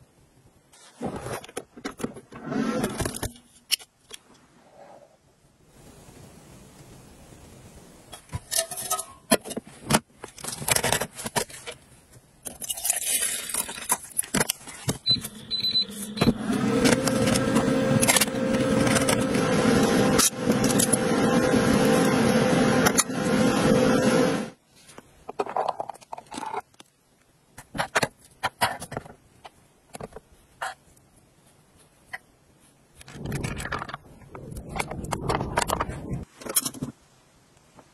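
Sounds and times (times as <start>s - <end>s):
clatter of lids and containers: 8.1s - 11.8s, 12.4s - 15.0s, 25.3s - 26.8s, 34.7s - 37.0s
induction cooktop humming: 15.1s - 24.6s.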